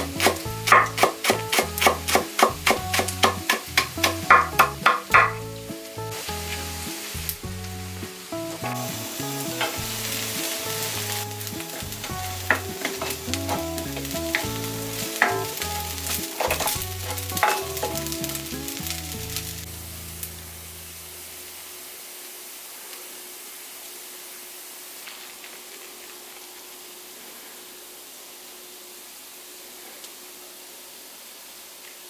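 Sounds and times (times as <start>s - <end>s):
spatula scraping and tapping pan: 0.0s - 5.5s, 11.0s - 18.4s
rice sizzling in a hot pan: 0.0s - 32.0s.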